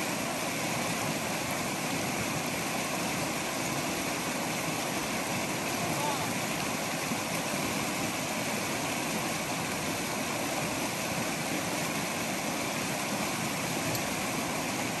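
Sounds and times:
river rushing water: 0.0 - 15.0.

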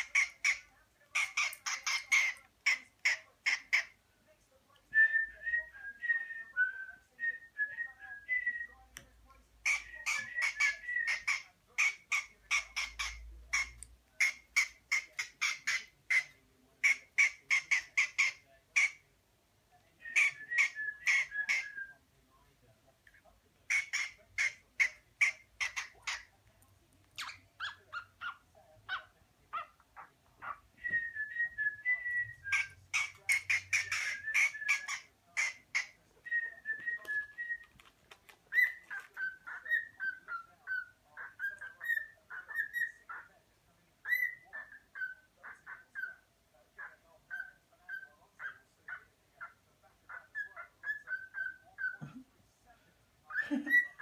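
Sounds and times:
cockatiel chirping: 0.0 - 3.9, 9.6 - 19.0, 20.2 - 21.8, 23.7 - 26.3, 32.5 - 36.0, 38.5 - 43.3, 44.0 - 46.2, 46.8 - 52.0, 53.3 - 54.0
cockatiel whistling: 20.1 - 21.9, 30.8 - 35.1.

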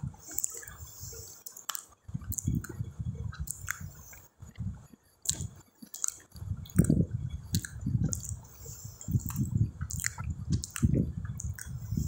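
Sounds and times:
mouth clicks: 0.2 - 12.0
wet chewing and lip-smacking: 0.2 - 12.0
fingers squishing rice: 5.2 - 12.0.

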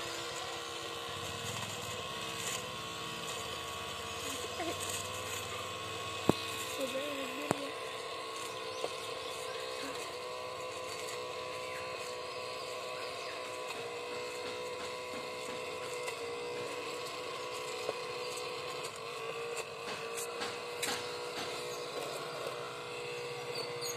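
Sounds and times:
small motor whining: 0.0 - 23.9
grains clicking up a hose: 1.2 - 7.8.

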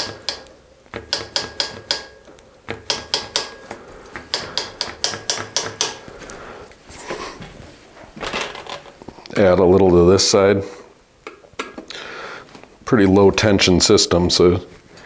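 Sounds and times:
bicycle wheel ticking: 0.0 - 6.0.

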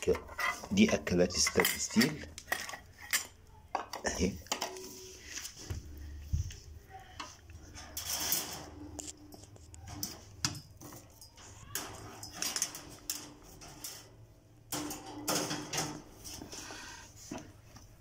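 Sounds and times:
metal cups clinking on cage wire: 7.9 - 14.1.

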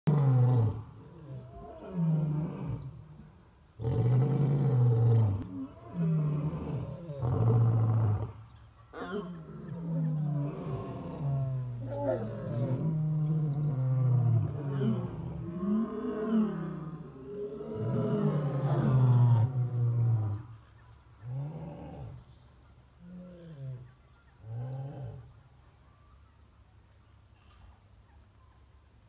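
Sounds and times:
lions roaring: 9.0 - 20.4.

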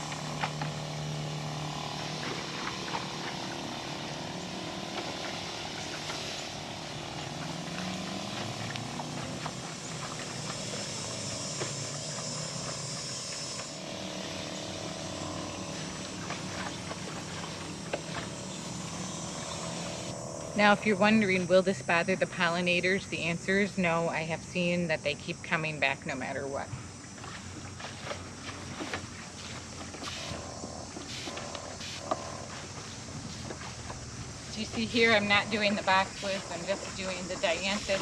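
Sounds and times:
electric pump humming: 0.0 - 38.0
spray hissing from wand: 31.1 - 32.1.

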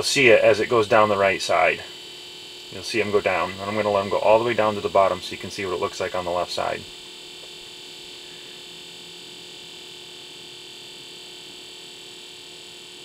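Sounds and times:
steady background hiss: 0.0 - 2.0, 2.7 - 8.6.

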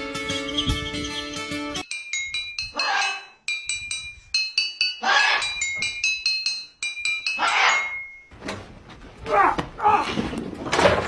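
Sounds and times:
toy xylophone notes: 1.8 - 8.3.

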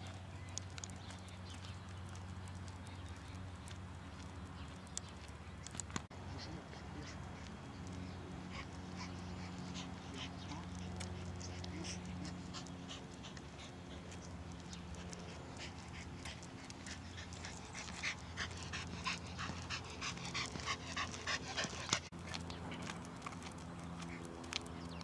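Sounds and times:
dog panting: 6.3 - 24.3.

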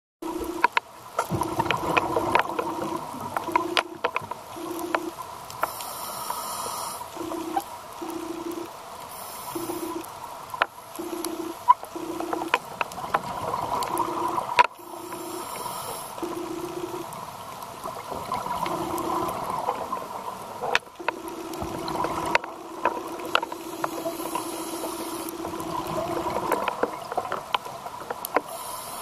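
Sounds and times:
sharp clicks: 0.4 - 6.4, 9.5 - 13.0, 20.7 - 28.5.

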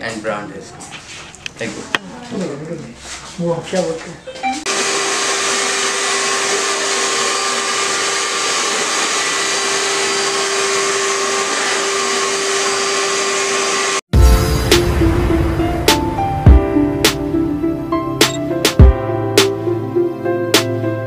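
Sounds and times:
hair dryer blowing: 4.7 - 14.1.

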